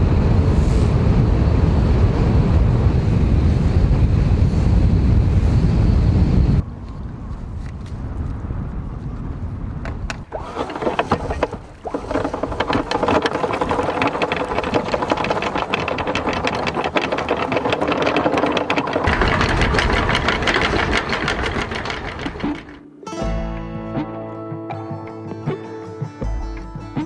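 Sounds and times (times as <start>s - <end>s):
machine running with rapid clatter: 10.3s - 22.8s.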